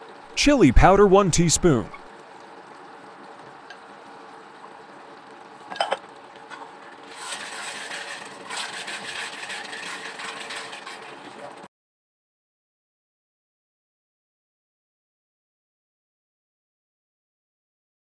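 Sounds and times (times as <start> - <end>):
wooden spatula scraping a pan: 7.1 - 11.2.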